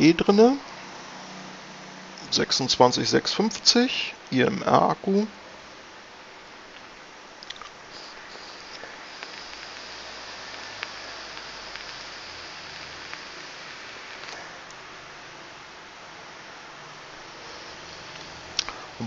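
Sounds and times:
vape hiss and coil sizzling: 0.0 - 5.3, 6.2 - 19.0
sharp crackles: 6.7 - 15.3.

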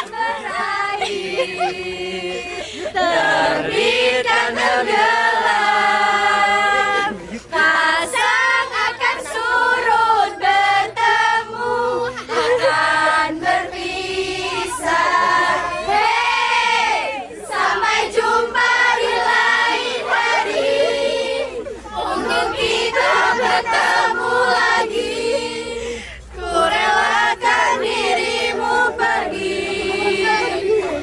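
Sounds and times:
teenagers singing together: 0.0 - 31.0.

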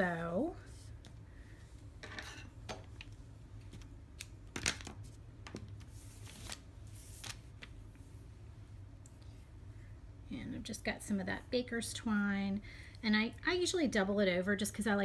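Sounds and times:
twine rustling on tabletop: 0.6 - 9.4.

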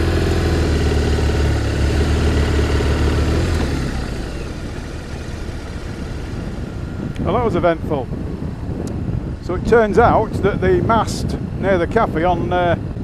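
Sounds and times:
motorcycle engine running: 0.0 - 13.0
wind noise: 3.6 - 13.0.

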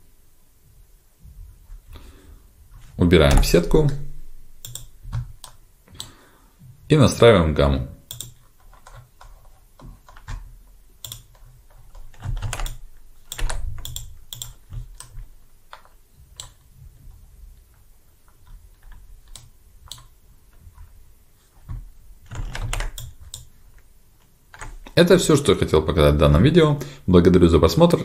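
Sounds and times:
keyboard and mouse clicks: 4.6 - 6.2, 8.0 - 16.7, 18.2 - 21.0, 21.6 - 25.0.

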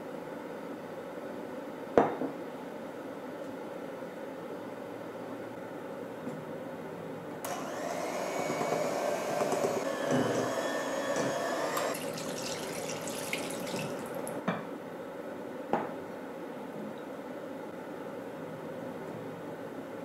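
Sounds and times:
electric hand mixer running: 7.5 - 14.0.

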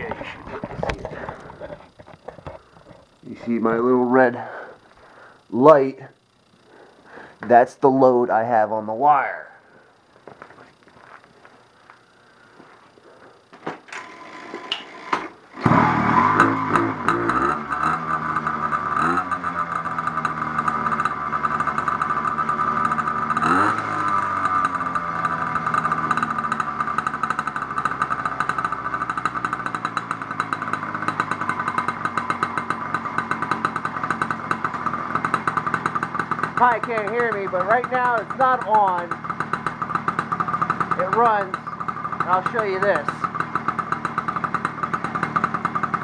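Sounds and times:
two-stroke engine running and revving: 14.0 - 46.0.

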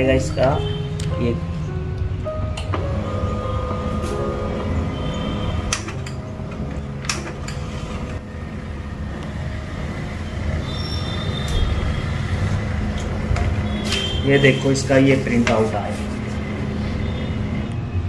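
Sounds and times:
printer mechanical hum: 2.5 - 18.0.

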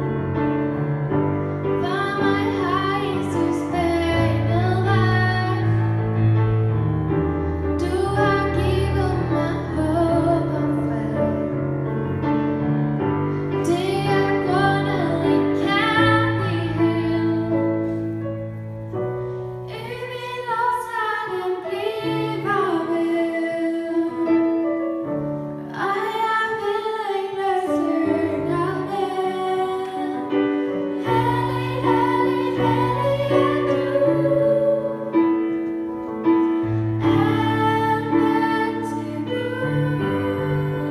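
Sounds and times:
keyboard accompaniment: 0.0 - 40.9
girls singing in harmony: 1.7 - 6.2, 7.8 - 11.4, 13.6 - 18.1, 19.7 - 24.7, 25.7 - 35.8, 36.6 - 40.9.

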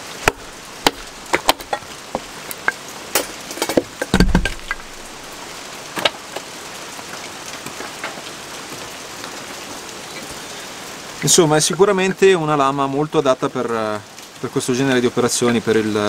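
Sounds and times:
steady rain: 0.0 - 16.0
heavy thump: 4.1 - 5.1.

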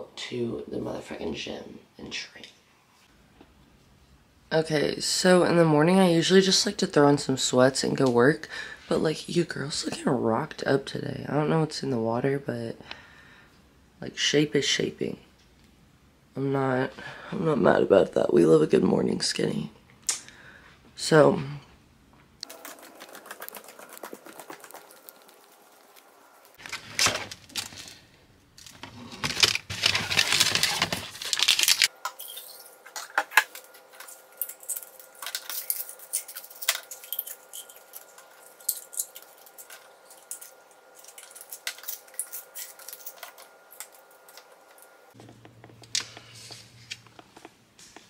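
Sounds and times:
faint hum: 19.5 - 48.0
pills rattling in bottles: 22.5 - 26.0, 28.6 - 32.6
plastic bottles clattering: 28.6 - 32.3.

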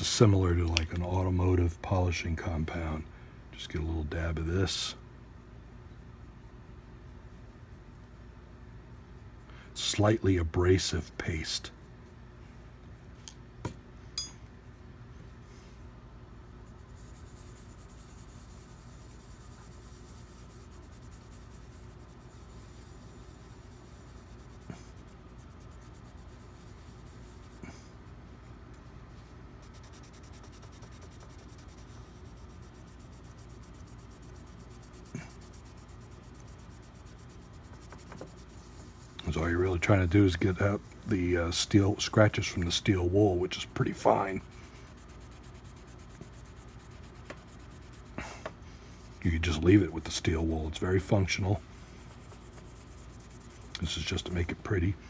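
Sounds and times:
rag rubbing on mouthpiece: 16.6 - 54.9.

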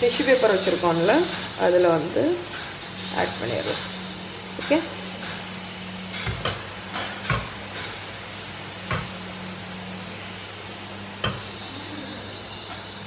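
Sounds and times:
utensils clinking on dishes: 0.2 - 8.1, 11.2 - 13.0.

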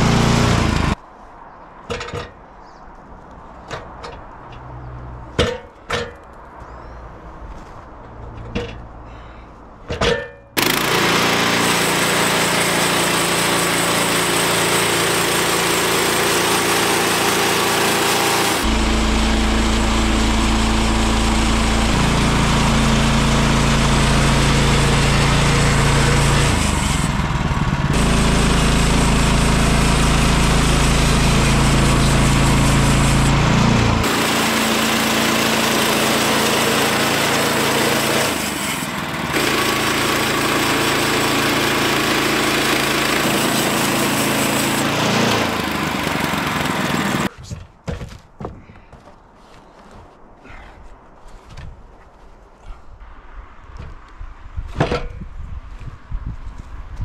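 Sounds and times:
small gasoline engine running: 0.0 - 1.0, 10.6 - 47.3
knocks and clunks: 1.8 - 2.5, 5.3 - 6.6, 8.0 - 9.0, 9.8 - 10.6, 47.3 - 49.2, 54.7 - 55.2.

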